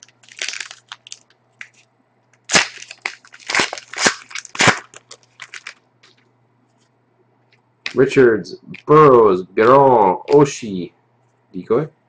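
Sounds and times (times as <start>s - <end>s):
foil wrapper rustling: 0.0s - 1.8s, 2.4s - 6.2s
foil wrapper tearing: 0.0s - 1.8s, 2.4s - 5.8s.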